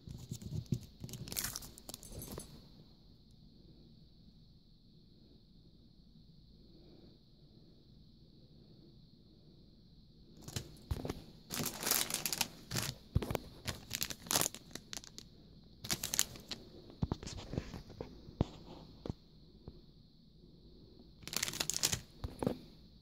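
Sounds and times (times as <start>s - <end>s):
cellophane crinkling and rustling: 0.0s - 2.5s, 10.4s - 17.8s, 21.2s - 22.6s.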